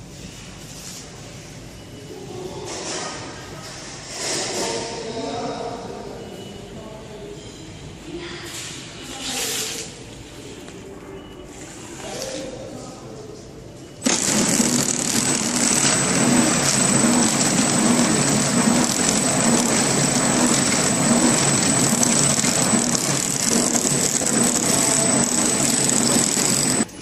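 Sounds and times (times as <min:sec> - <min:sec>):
steady high machine whine: 0:13.1 - 0:27.0
packing machine clatter: 0:14.0 - 0:26.9.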